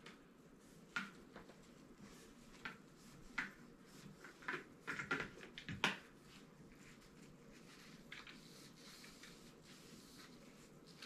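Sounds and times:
cloth swishing on a rod: 0:00.2 - 0:04.8.

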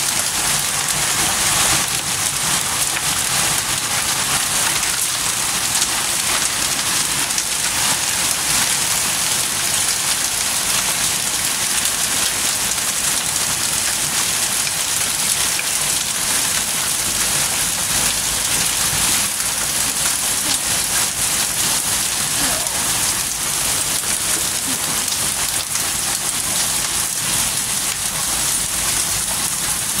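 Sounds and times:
hail and heavy rain on paving: 0:00.0 - 0:30.0.

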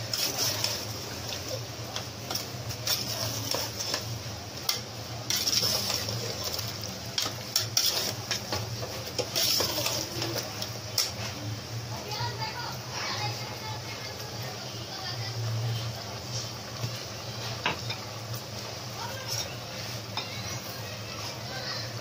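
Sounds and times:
meat sizzling in oil: 0:00.0 - 0:22.0
metal spoon scraping a pot: 0:05.3 - 0:10.4.

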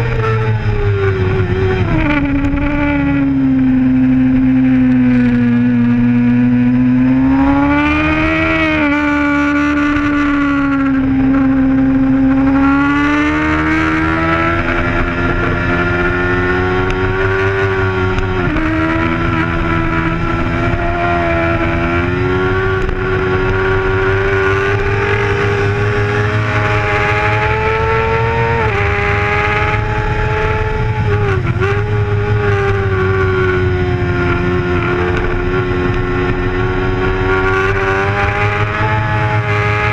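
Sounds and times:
sport bike engine at high revs: 0:00.0 - 0:39.9.

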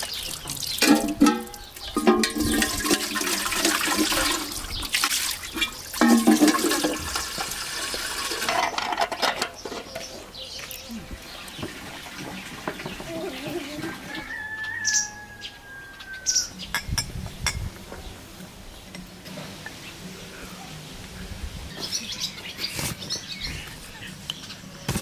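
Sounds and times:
water running from tap: 0:00.0 - 0:08.5
water pouring into metal kettle: 0:00.0 - 0:08.8.

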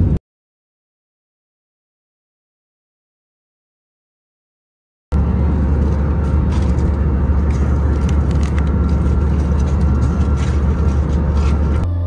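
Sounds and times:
airliner engine rumble: 0:00.0 - 0:00.2, 0:05.1 - 0:12.0.

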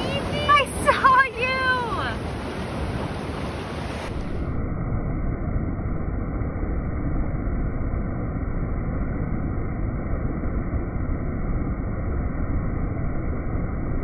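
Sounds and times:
ocean surf washing: 0:00.0 - 0:04.6.

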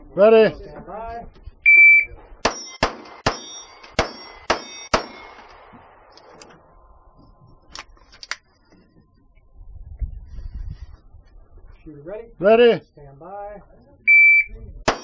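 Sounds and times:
steel targets ringing: 0:02.4 - 0:05.5
pistol shots: 0:02.4 - 0:05.7.

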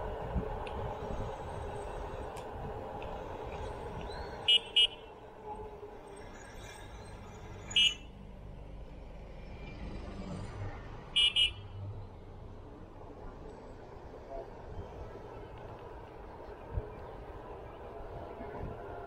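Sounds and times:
wind noise: 0:00.0 - 0:04.6, 0:14.0 - 0:19.0
vehicle ride rumble: 0:00.0 - 0:19.0.

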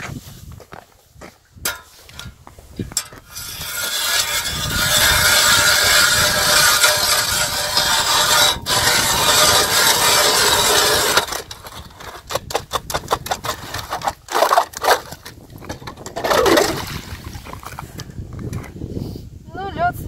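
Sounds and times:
auger scrapes and knocks: 0:01.7 - 0:18.8
ice auger grinding through ice: 0:03.2 - 0:18.0.

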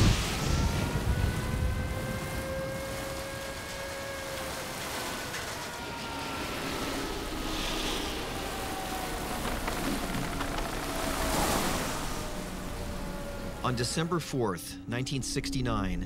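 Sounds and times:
sustained tones falling in pitch: 0:01.0 - 0:16.0
steady rushing noise: 0:06.6 - 0:16.0.

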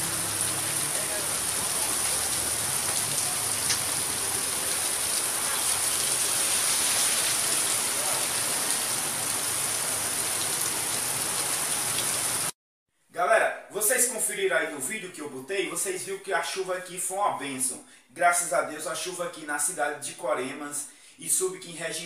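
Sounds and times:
rain falling on wet street: 0:00.0 - 0:12.6.

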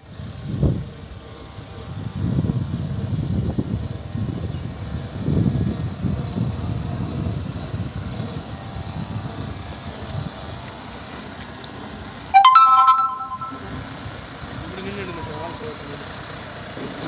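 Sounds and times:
wind on microphone: 0:01.9 - 0:10.5
loud rising pitched tone: 0:12.4 - 0:14.0.

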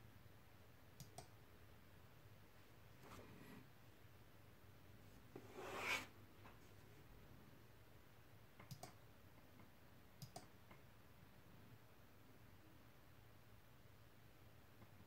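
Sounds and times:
computer mouse double-clicks: 0:01.0 - 0:01.3, 0:08.6 - 0:09.0, 0:10.2 - 0:10.5.

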